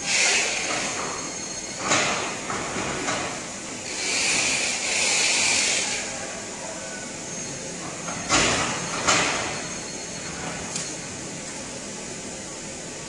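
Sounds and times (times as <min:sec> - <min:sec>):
hiss: 0:03.9 - 0:06.1.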